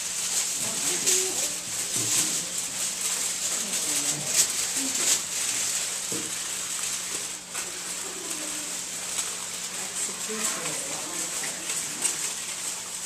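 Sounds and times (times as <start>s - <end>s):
tin foil crinkling: 0.0s - 13.0s
faint murmured voices: 0.6s - 5.5s, 7.2s - 12.4s.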